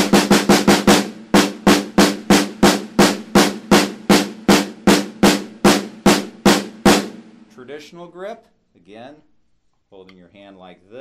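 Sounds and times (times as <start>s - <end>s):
snare drum strokes: 0.0s - 7.6s.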